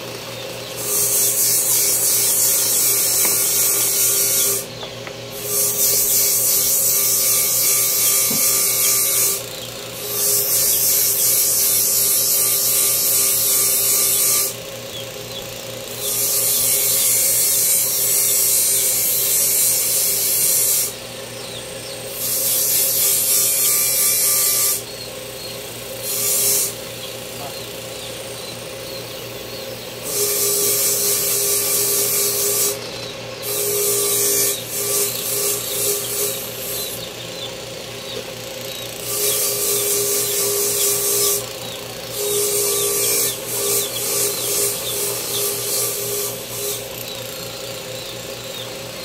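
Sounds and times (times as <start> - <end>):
power tool humming: 0.0 - 49.0
harsh high grinding hiss: 0.7 - 14.6, 15.6 - 32.8, 33.4 - 37.0, 38.7 - 48.5.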